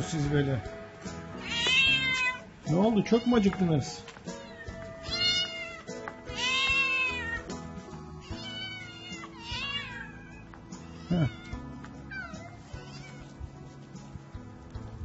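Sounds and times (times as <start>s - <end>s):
cats meowing: 1.3s - 7.6s, 8.2s - 13.4s.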